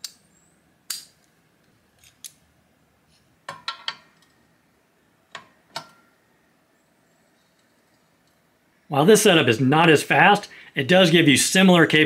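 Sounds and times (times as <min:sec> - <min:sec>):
metallic clicks of hand tools: 0:00.0 - 0:00.2, 0:00.9 - 0:02.4.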